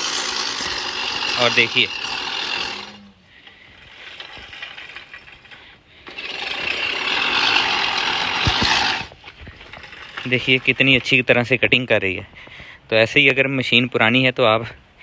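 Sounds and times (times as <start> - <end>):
reel lawn mower whirring: 0.0 - 11.2.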